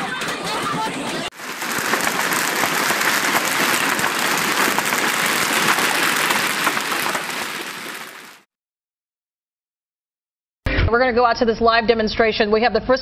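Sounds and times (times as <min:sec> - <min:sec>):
dense patter of small impacts: 0:00.0 - 0:08.5.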